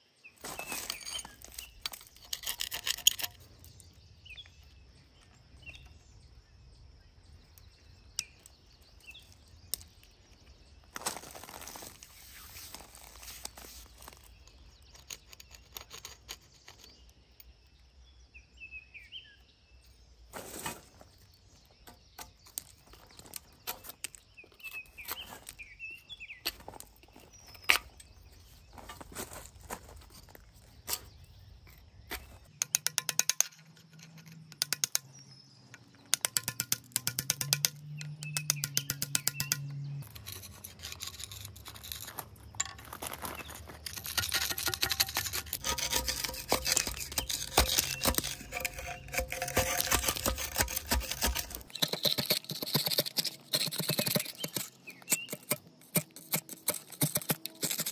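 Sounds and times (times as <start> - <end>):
bird chirps: 0.0 - 20.3, 30.2 - 55.8
metal scraper on ceramic sink: 43.8 - 57.9.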